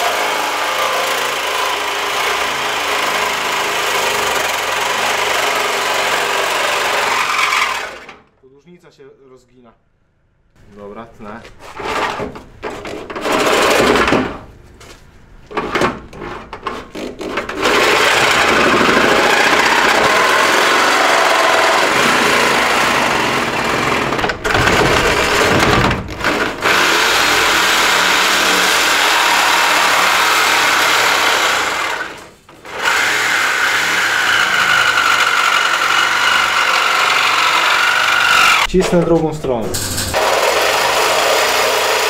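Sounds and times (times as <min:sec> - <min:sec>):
reciprocating saw cutting metal: 0:00.0 - 0:08.1, 0:16.8 - 0:38.7, 0:39.6 - 0:42.0.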